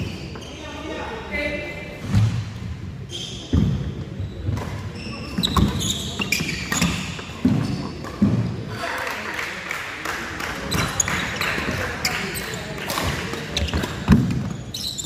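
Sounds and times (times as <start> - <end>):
shoes squeaking: 0.0 - 1.1, 3.0 - 8.3, 10.7 - 15.0.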